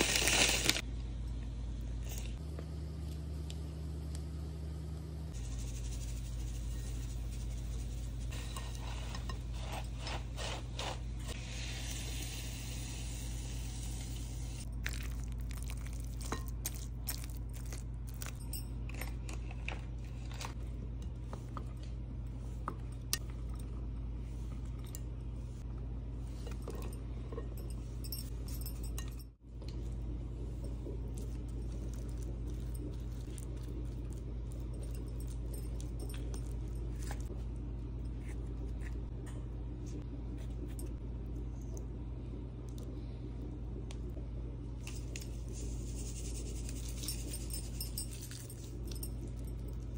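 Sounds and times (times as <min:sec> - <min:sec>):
steady low hum: 0:00.7 - 0:49.9
wooden spoon scraping glass bowl: 0:06.5 - 0:11.1.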